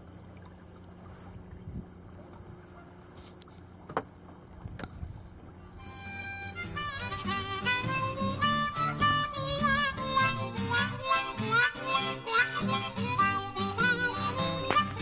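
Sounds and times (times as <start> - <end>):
harmonica music: 5.6 - 15.0.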